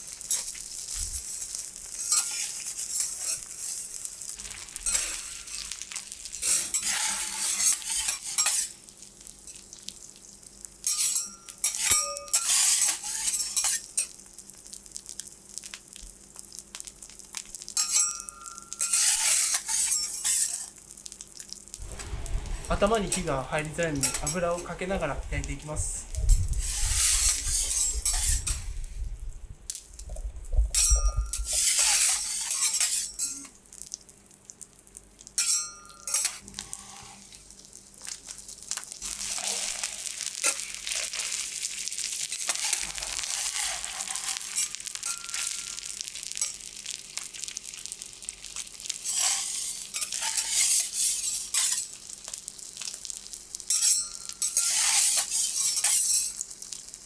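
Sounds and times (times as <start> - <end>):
fish sizzling in oil: 0.0 - 57.0
metal spatulas scraping griddle: 2.0 - 3.8, 4.5 - 5.8, 6.4 - 8.7, 10.9 - 13.8, 18.8 - 20.7, 24.0 - 24.4, 26.6 - 28.7, 30.8 - 33.3, 35.4 - 37.3, 42.5 - 45.5, 49.0 - 51.8, 53.8 - 56.4.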